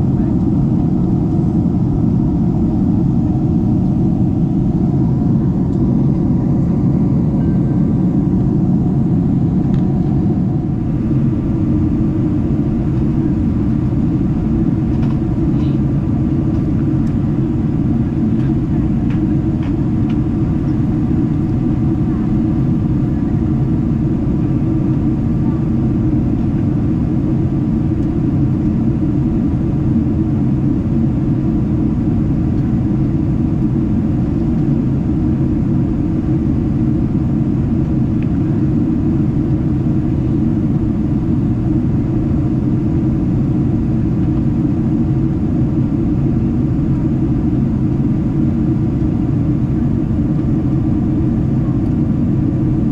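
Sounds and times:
airflow noise: 0:00.0 - 0:30.0
airliner cabin engine rumble: 0:00.0 - 0:52.9.

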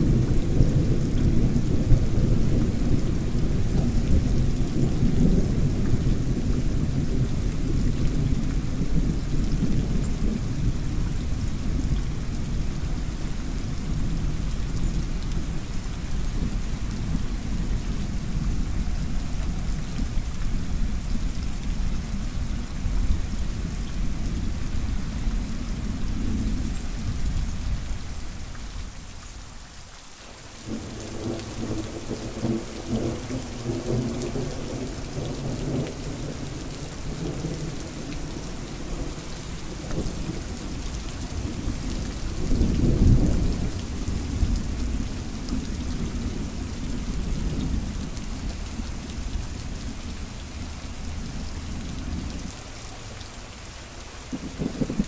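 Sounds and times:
steady rain: 0:00.0 - 0:55.0
thunder rumbling: 0:30.7 - 0:48.7, 0:54.3 - 0:55.0.

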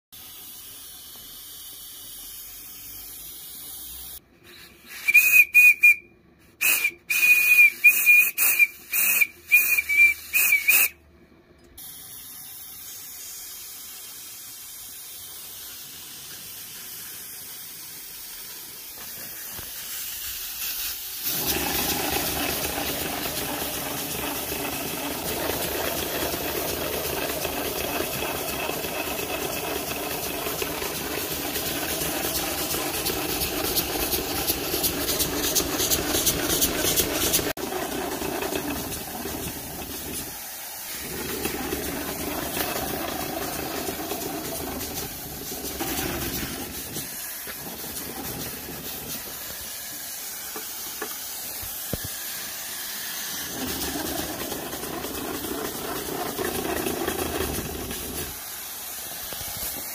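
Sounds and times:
boiler steam hissing: 0:00.2 - 0:11.0, 0:11.8 - 0:59.9
steady rush of steam: 0:00.2 - 0:11.0, 0:11.8 - 0:59.9
steam whistle short blasts: 0:04.5 - 0:11.0.

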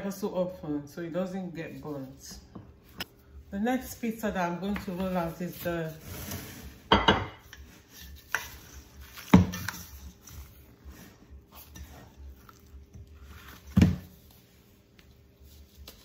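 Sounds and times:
dough rustling: 0:03.6 - 0:16.0.

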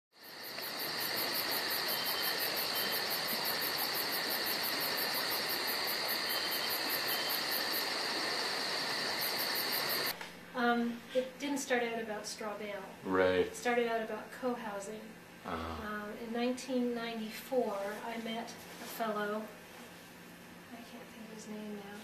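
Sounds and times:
insect chorus chirring: 0:00.2 - 0:10.2.

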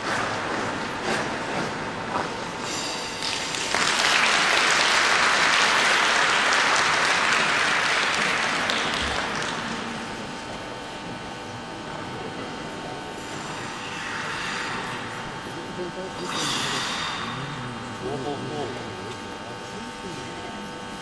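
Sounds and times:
audience applauding: 0:03.2 - 0:10.1.

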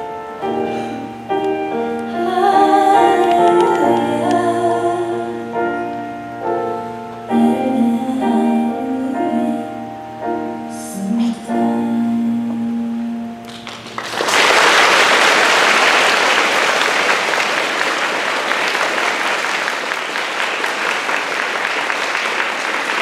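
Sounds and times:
recorded music held chord: 0:00.0 - 0:14.0
audience applauding: 0:13.5 - 0:23.0.

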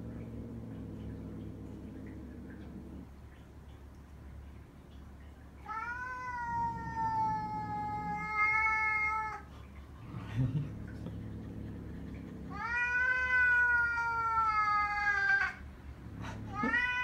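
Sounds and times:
cat yowling: 0:05.6 - 0:09.5, 0:12.5 - 0:15.6, 0:16.5 - 0:17.0.

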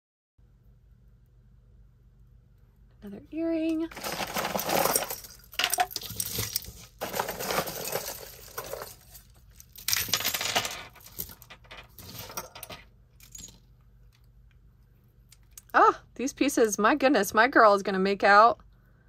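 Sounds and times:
jewelry clinking and rattling: 0:03.9 - 0:13.8.

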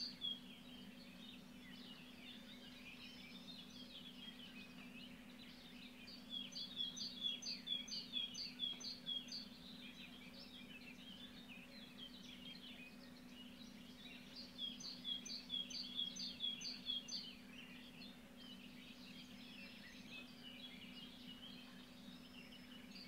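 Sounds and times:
faint low hum: 0:00.0 - 0:23.0
small birds chirping: 0:00.0 - 0:23.0.

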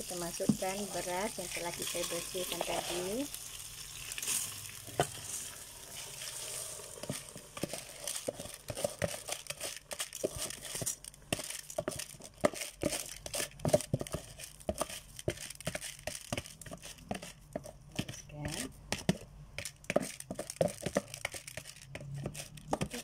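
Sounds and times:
rice grains falling into pot: 0:04.0 - 0:17.2
plastic bag crinkling: 0:07.1 - 0:13.5, 0:20.0 - 0:23.0.

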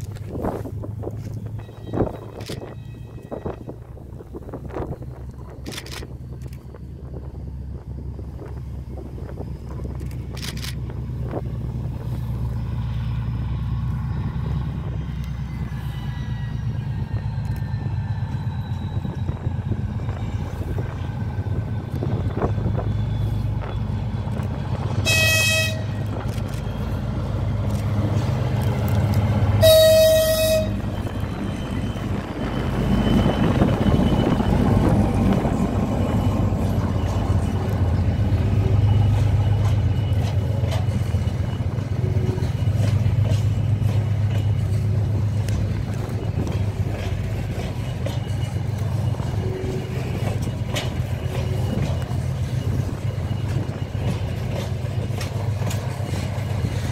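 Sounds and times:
diesel locomotive engine passing: 0:00.0 - 0:56.9
freight wagons rumbling on rails: 0:00.0 - 0:56.9
locomotive horn blasts: 0:25.0 - 0:26.2, 0:29.5 - 0:31.1.

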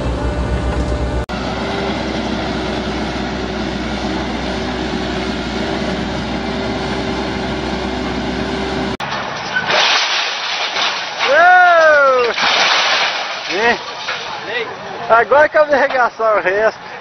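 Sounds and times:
diesel engine running: 0:00.0 - 0:09.4.

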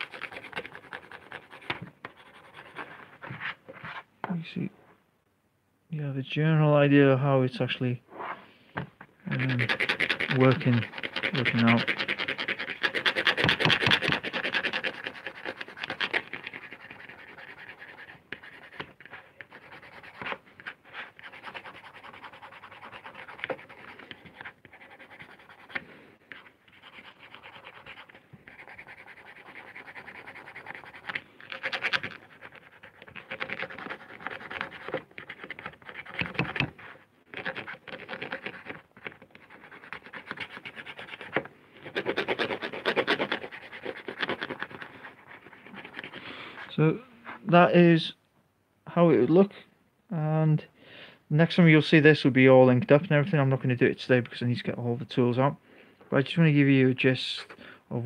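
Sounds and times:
pencil scratching on lino: 0:00.0 - 0:04.1, 0:09.3 - 0:47.5.

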